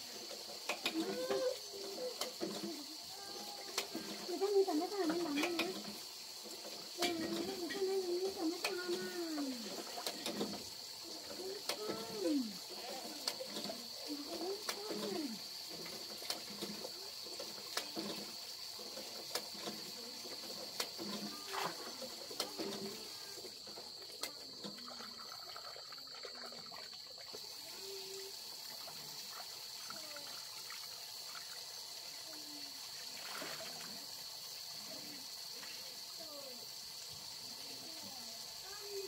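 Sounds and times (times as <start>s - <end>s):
water trickling onto concrete: 0.0s - 23.3s.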